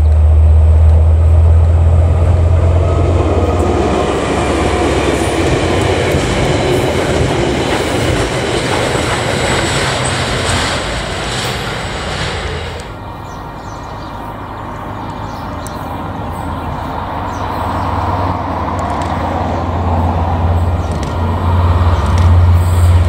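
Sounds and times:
train wheels clattering on rails: 0:00.0 - 0:13.0, 0:18.8 - 0:23.0
locomotive hum: 0:00.0 - 0:23.0.

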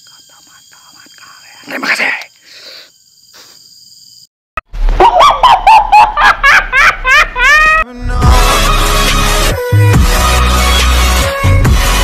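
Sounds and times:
faint insect drone: 0:00.0 - 0:04.3.

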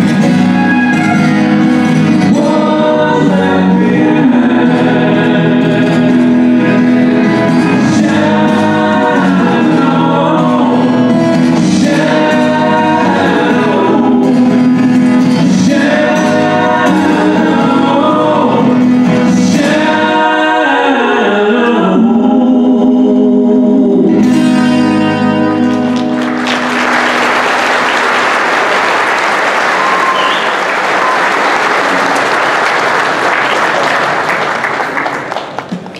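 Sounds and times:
acoustic guitar: 0:00.0 - 0:35.9
man singing: 0:02.1 - 0:25.9
audience applauding: 0:25.6 - 0:35.9.

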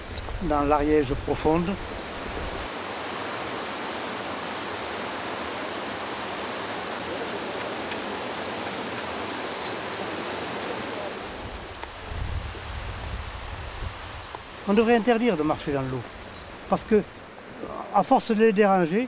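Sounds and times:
river rushing over rocks: 0:00.0 - 0:12.1.

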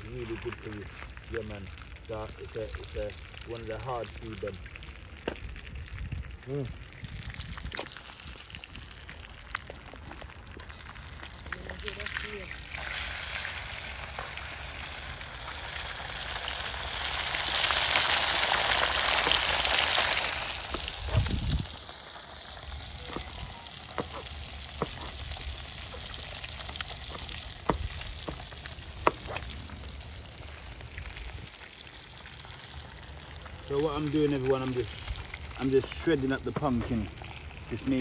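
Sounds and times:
food sizzling in hot oil: 0:00.0 - 0:38.0.

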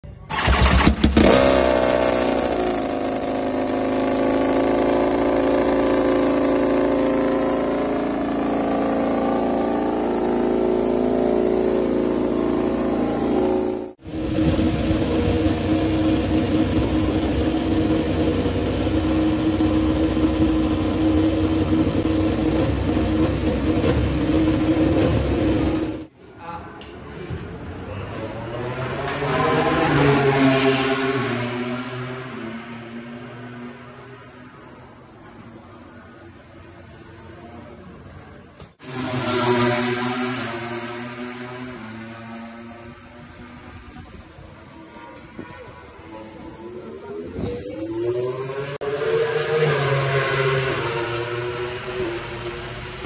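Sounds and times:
motorcycle engine revving and idling: 0:00.1 - 0:26.1, 0:36.8 - 0:53.0
steady engine drone: 0:00.4 - 0:26.1, 0:36.8 - 0:53.0.

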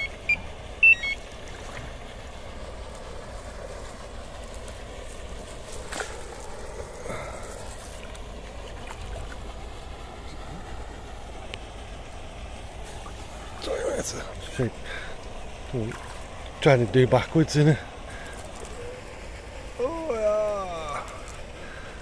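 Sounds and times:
electronic alarm beeps: 0:00.0 - 0:01.2
low steady hiss: 0:00.0 - 0:22.0.

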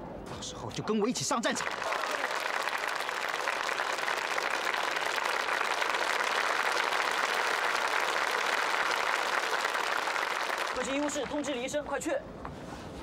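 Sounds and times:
crowd applauding: 0:01.5 - 0:11.7.

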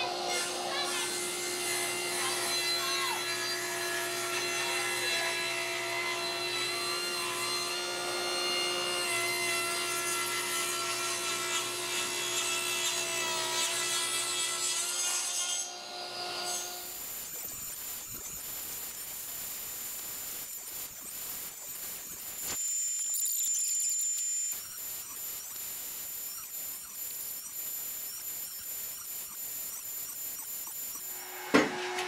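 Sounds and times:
saw blade cutting wood: 0:00.0 - 0:32.0
table saw motor hum: 0:15.6 - 0:32.0.

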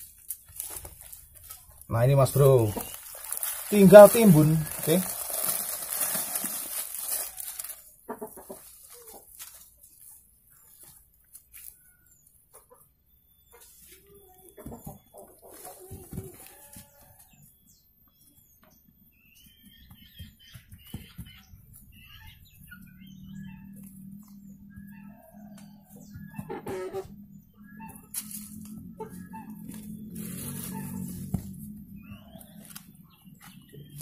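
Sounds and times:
birds chirping: 0:00.0 - 0:34.0
chickens clucking: 0:00.6 - 0:05.1, 0:07.3 - 0:11.0, 0:12.4 - 0:17.5, 0:20.8 - 0:31.4.

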